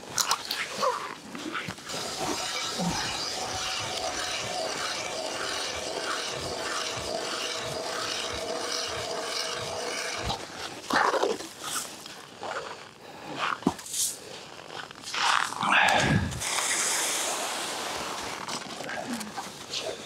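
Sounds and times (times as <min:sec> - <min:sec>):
auger scraping: 0:01.4 - 0:12.7
ice auger grinding: 0:01.4 - 0:13.0, 0:16.4 - 0:20.0.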